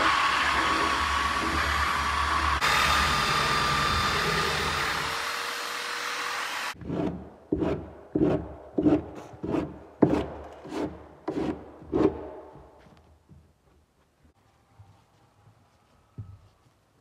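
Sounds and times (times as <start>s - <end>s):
belt sander on plywood: 0.0s - 9.6s
hand sanding strokes: 5.4s - 12.2s.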